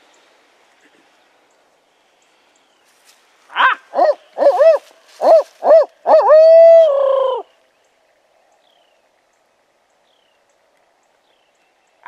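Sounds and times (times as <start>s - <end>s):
owl hooting: 3.5s - 7.6s.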